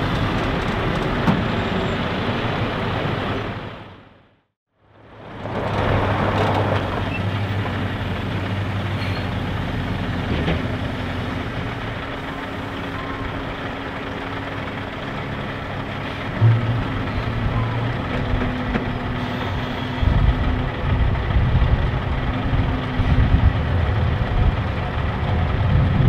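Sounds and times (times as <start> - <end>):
diesel truck engine running: 0.0 - 26.0
steady higher hum: 12.0 - 26.0.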